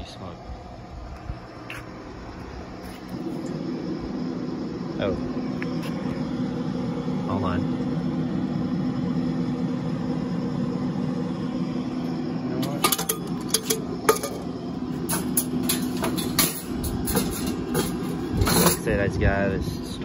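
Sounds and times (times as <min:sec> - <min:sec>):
pellet grill humming: 0:00.0 - 0:20.0
metal rack clanking and rattling: 0:12.6 - 0:19.0.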